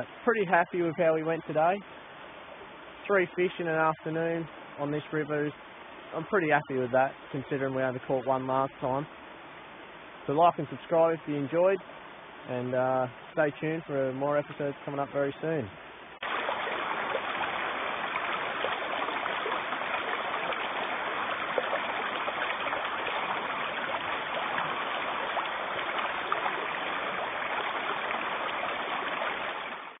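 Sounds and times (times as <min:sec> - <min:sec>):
river rippling over stones: 0:13.5 - 0:30.0.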